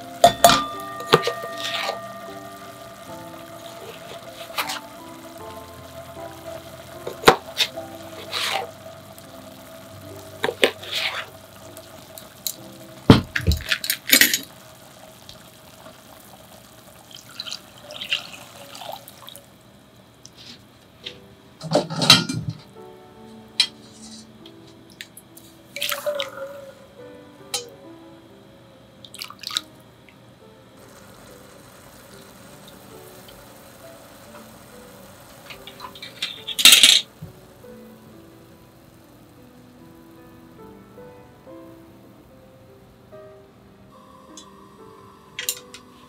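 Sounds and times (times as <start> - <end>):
soft background music: 0.0 - 20.1, 21.0 - 46.0
knocks and clinks against pot: 0.2 - 2.3
liquid pouring into saucepan: 0.2 - 19.6, 25.8 - 26.6, 29.1 - 29.7.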